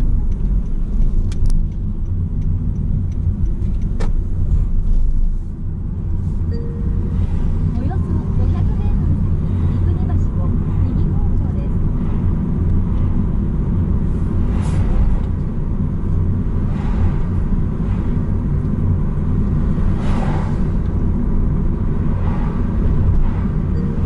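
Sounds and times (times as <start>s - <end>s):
car road rumble inside cabin: 0.0s - 24.0s
brief whooshes: 19.8s - 20.9s.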